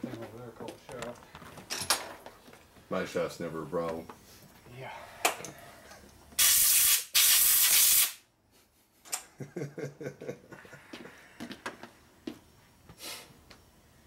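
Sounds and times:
air blow gun hissing: 0:06.4 - 0:08.2.

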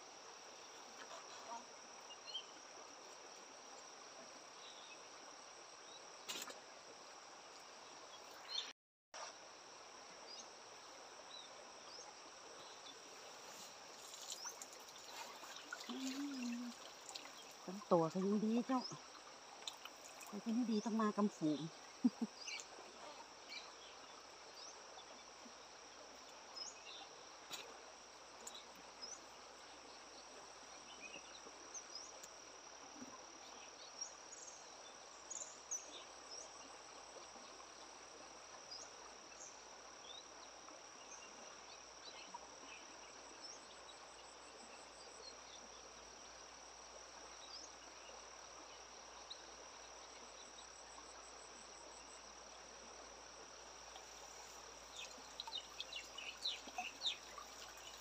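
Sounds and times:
high-pitched insect trill: 0:53.0 - 0:58.0.

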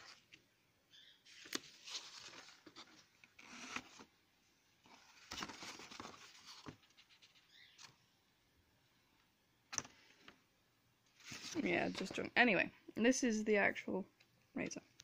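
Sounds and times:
paper rustling and scraping: 0:01.2 - 0:04.1, 0:04.8 - 0:08.0, 0:11.2 - 0:12.3.

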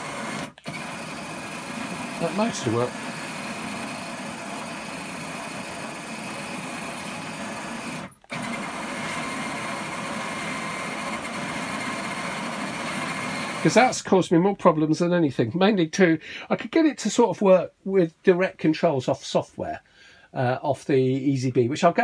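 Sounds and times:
gear-driven motor whirr: 0:00.0 - 0:13.8.

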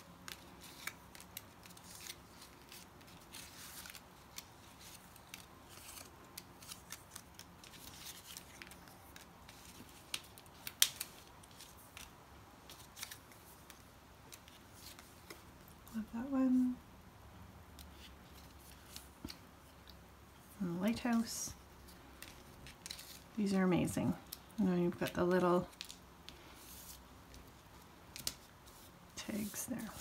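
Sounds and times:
paper rustling: 0:00.2 - 0:15.7, 0:20.9 - 0:23.4.

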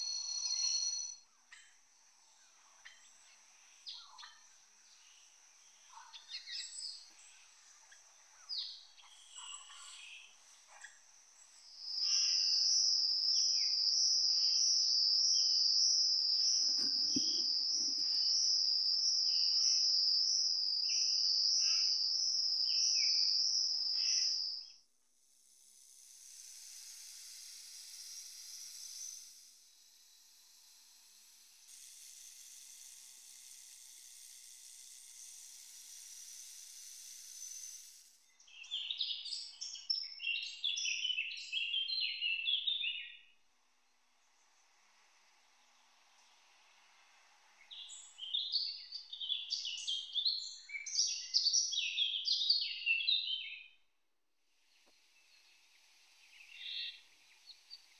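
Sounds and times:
high-pitched insect trill: 0:00.0 - 0:43.3, 0:47.6 - 0:53.6, 0:55.3 - 0:57.9
hissing insect chorus: 0:00.0 - 0:43.5, 0:44.2 - 0:53.8, 0:54.6 - 0:57.9
rapid high bird twittering: 0:47.6 - 0:53.6, 0:56.2 - 0:57.9.

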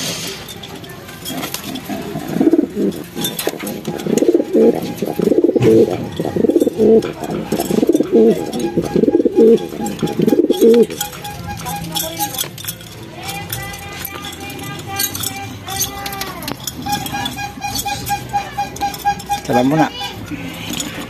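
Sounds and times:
pigeons cooing: 0:01.2 - 0:12.5.

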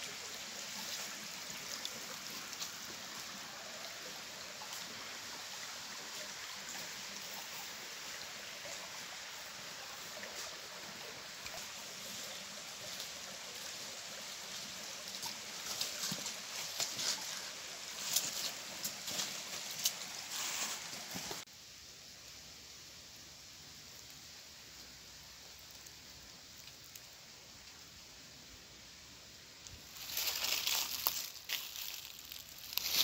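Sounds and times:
stream running over stones: 0:00.0 - 0:33.0
footsteps on gravel: 0:29.9 - 0:33.0.

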